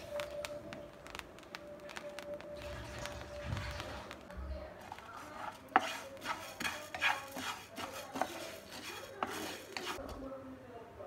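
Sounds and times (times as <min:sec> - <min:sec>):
rice grains rattling in pan: 0:04.8 - 0:10.0
wooden spatula scraping metal pan: 0:04.8 - 0:10.1.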